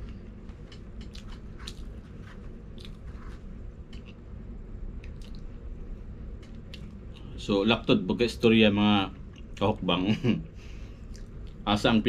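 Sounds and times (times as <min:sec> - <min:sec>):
person chewing crispy chicken: 0:01.0 - 0:04.2.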